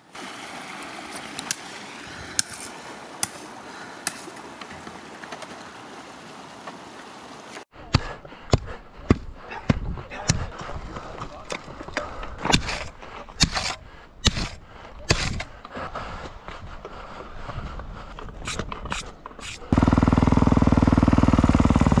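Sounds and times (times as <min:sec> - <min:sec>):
shovel scraping dirt and gravel: 0:01.1 - 0:04.7, 0:11.2 - 0:15.6, 0:18.4 - 0:19.8.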